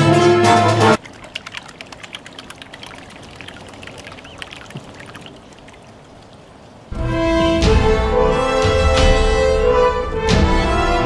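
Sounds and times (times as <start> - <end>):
paddle wheel splashing water: 0.0 - 8.4.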